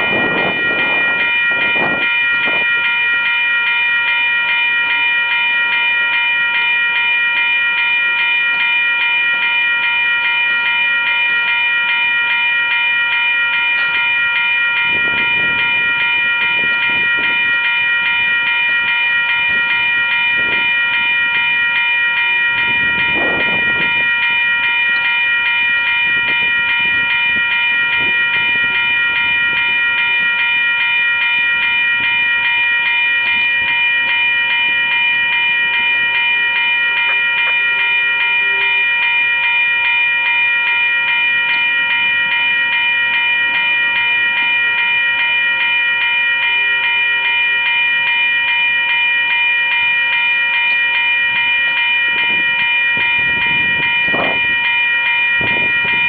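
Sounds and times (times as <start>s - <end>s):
freight train rolling past: 0.0s - 56.0s
high-pitched whine: 13.7s - 30.5s.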